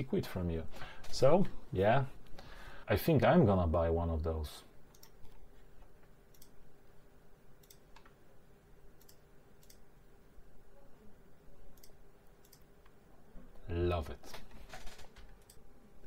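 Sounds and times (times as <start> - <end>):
computer mouse clicking: 4.9 - 6.6, 7.6 - 8.2, 9.0 - 9.8, 11.8 - 13.0, 14.4 - 15.6.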